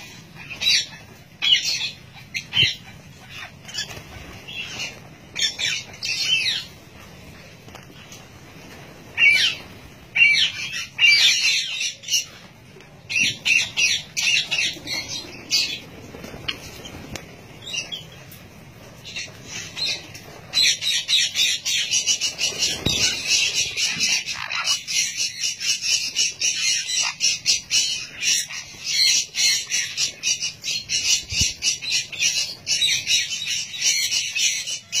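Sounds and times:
parrots screeching and chattering: 0.0s - 35.0s.

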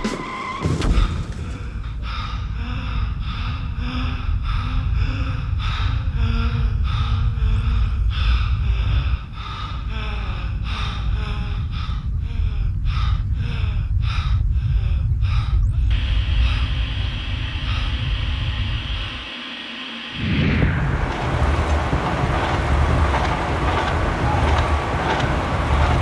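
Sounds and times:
steady low rumble: 0.8s - 26.0s.

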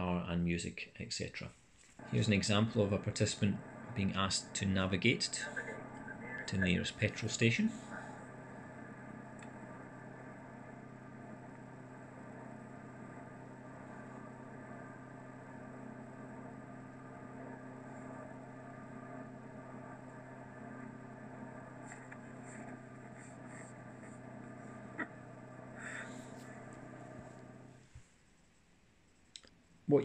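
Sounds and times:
car engine and road hum: 7.8s - 27.6s.

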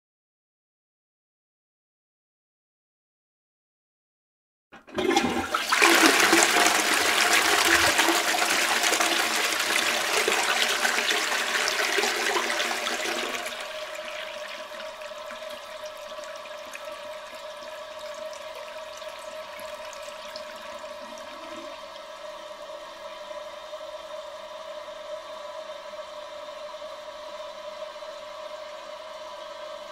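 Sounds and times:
toilet flushing: 4.8s - 24.0s.

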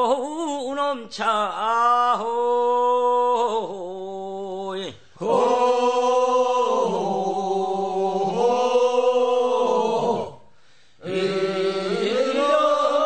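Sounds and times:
slow drawn-out funeral chant: 2.3s - 13.0s.

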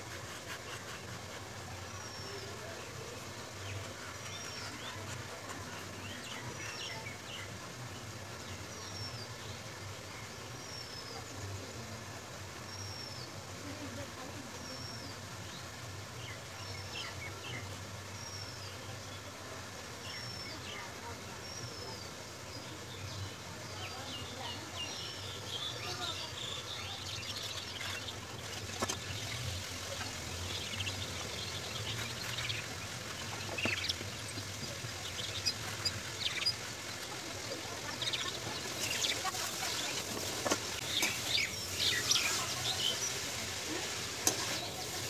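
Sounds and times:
knife sawing through bread: 0.0s - 1.5s
small birds chirping: 0.0s - 45.0s.

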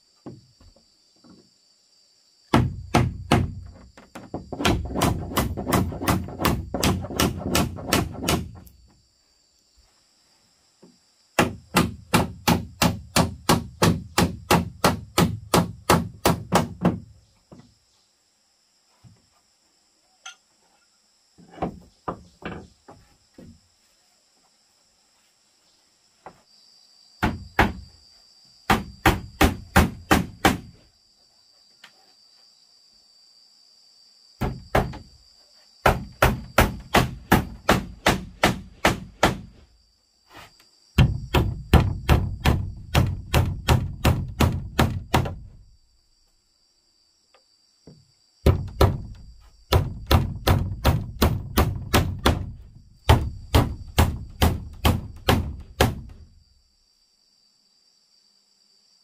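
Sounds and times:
hammer driving nails into wood: 2.5s - 3.7s, 4.5s - 8.7s, 35.8s - 39.5s, 41.0s - 45.4s, 48.5s - 52.5s, 53.1s - 56.2s.

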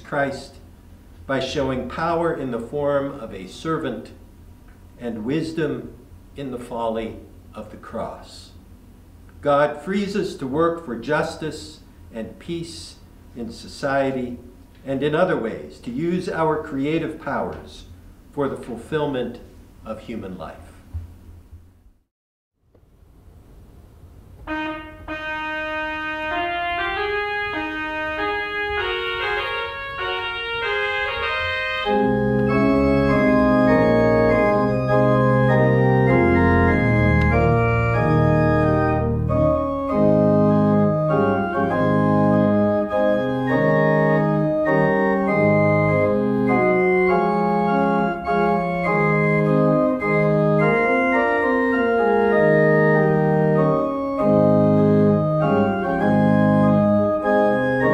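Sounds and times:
pipe organ playing: 1.3s - 4.1s, 24.4s - 57.9s.

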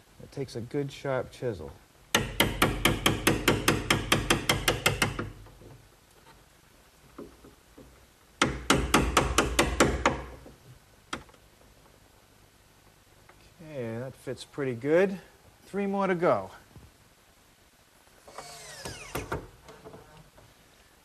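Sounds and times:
hammer tapping chisel into wood: 2.1s - 5.4s, 8.4s - 10.5s.

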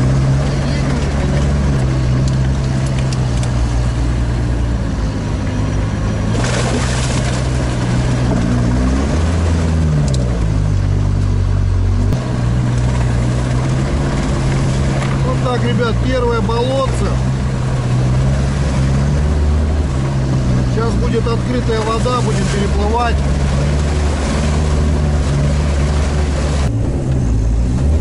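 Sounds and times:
diesel engine running: 0.0s - 28.0s
water splashing: 6.0s - 11.4s, 12.1s - 26.8s.

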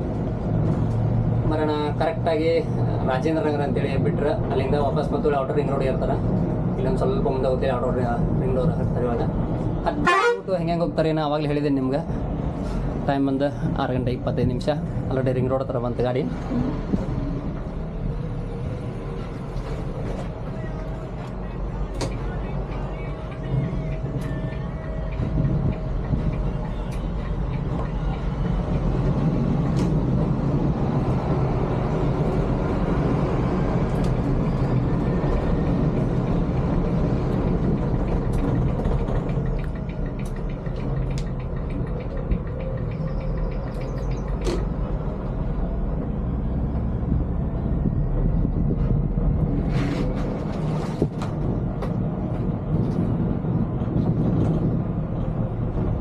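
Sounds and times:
diesel engine and road rumble: 0.0s - 56.0s
sharp ticks and clicks: 21.5s - 30.2s, 33.8s - 45.1s.

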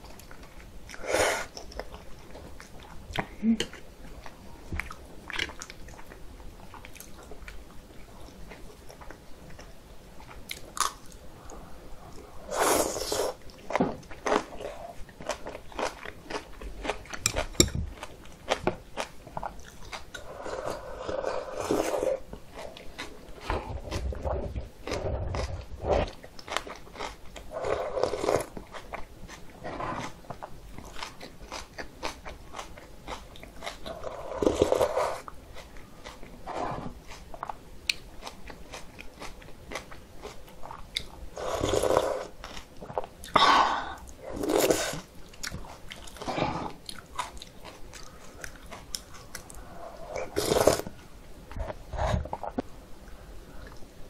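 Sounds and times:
chewing and crunching food: 0.0s - 52.7s
slurping broth: 12.4s - 13.4s, 20.2s - 22.2s, 33.9s - 35.2s, 41.4s - 42.3s, 43.4s - 45.1s, 49.8s - 50.9s.

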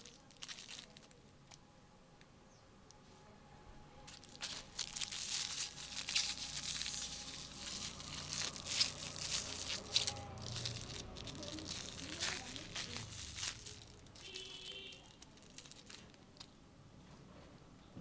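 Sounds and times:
aluminium foil crinkling: 0.0s - 1.6s, 4.0s - 16.6s.

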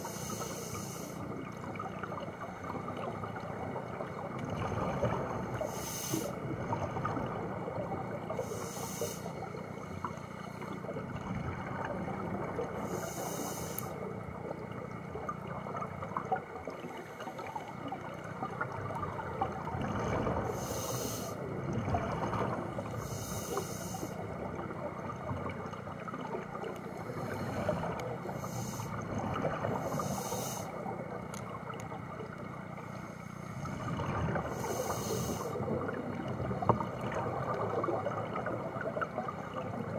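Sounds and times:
regulator inhalation hiss: 0.0s - 1.2s, 5.7s - 6.4s, 8.4s - 9.4s, 12.8s - 14.0s, 20.6s - 21.4s, 23.0s - 24.2s, 28.3s - 29.0s, 29.8s - 30.8s, 34.6s - 35.6s
exhaled bubbles gurgling: 0.0s - 39.9s.

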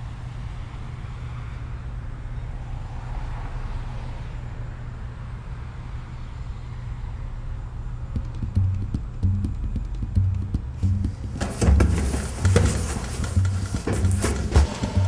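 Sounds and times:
road traffic rumble: 0.0s - 15.0s
car passing by: 2.5s - 4.6s
drum-like thumps: 8.1s - 15.0s
sharp clicks: 8.2s - 11.4s.

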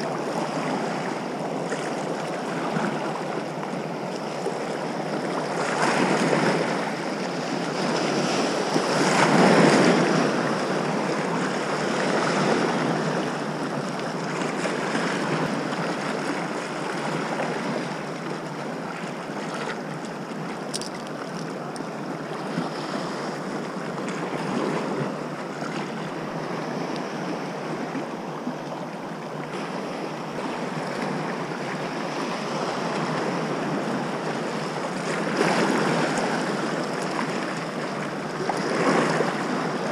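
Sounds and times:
small waves washing over shallows: 0.0s - 39.9s
wind noise on microphone: 5.0s - 18.1s.

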